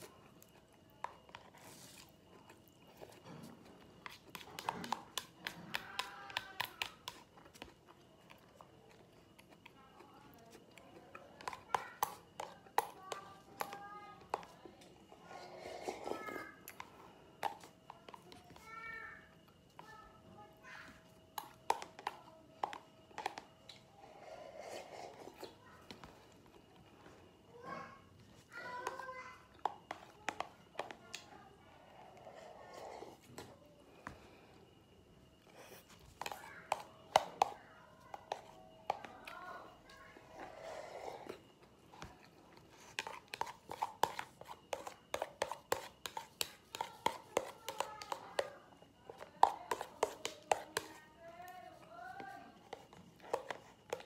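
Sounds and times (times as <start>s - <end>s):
soft chewing: 0.0s - 20.1s, 21.2s - 27.6s, 28.2s - 54.0s
plastic spoon tapping plastic bowl: 4.0s - 7.7s, 11.4s - 14.6s, 16.3s - 18.4s, 21.3s - 23.8s, 28.8s - 31.2s, 36.2s - 39.4s, 42.9s - 51.1s, 51.8s - 54.0s
slurping soup: 15.3s - 16.9s, 24.0s - 25.6s, 40.2s - 41.5s
chopsticks tapping plastic container: 36.2s - 39.4s, 43.0s - 48.6s, 49.2s - 51.0s.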